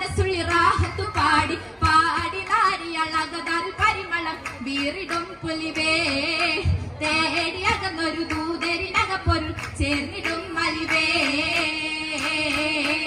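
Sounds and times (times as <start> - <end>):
girls singing over a pa: 0.0 - 13.0
sharp hand claps: 2.2 - 2.8, 3.8 - 6.7, 7.6 - 13.0.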